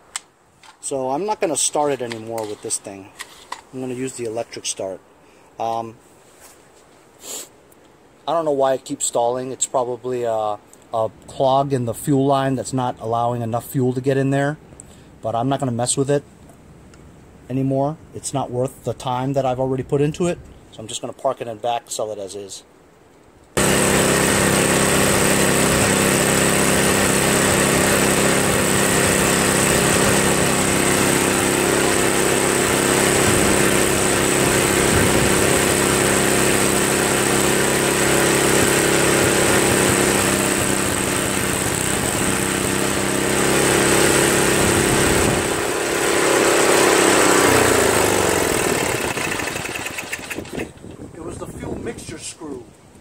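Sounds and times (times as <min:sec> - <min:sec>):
snowblower engine running: 0:23.6 - 0:50.8.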